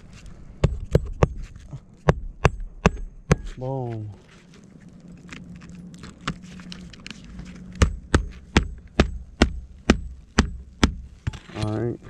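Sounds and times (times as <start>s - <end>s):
hammer striking nail: 2.0s - 3.6s, 7.8s - 11.4s.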